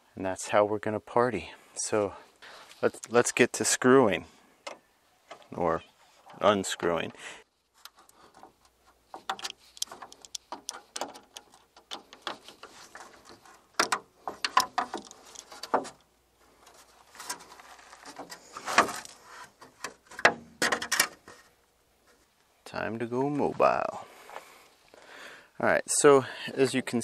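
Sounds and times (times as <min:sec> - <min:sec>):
plastic grille clicks and rattles: 0:07.9 - 0:16.0, 0:17.2 - 0:21.2.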